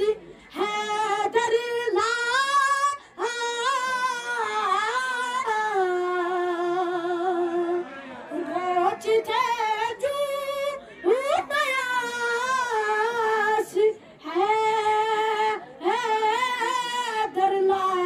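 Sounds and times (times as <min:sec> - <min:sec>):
boy singing unaccompanied: 0:08.4 - 0:18.0.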